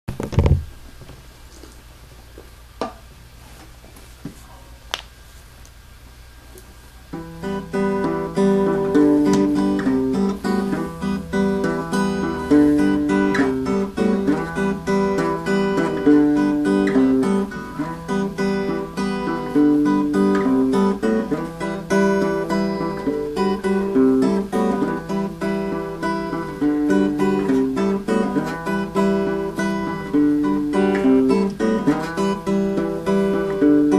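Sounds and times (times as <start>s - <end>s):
faint steady hum: 0.1s - 33.9s
electric guitar melody: 7.1s - 33.9s.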